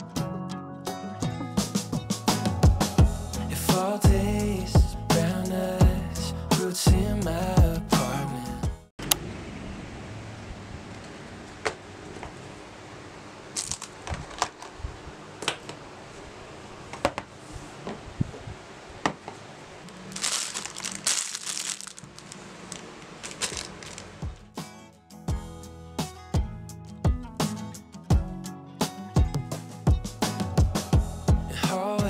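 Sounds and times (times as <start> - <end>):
crinkly packaging rustle: 13.5 - 14.8, 19.8 - 24.4.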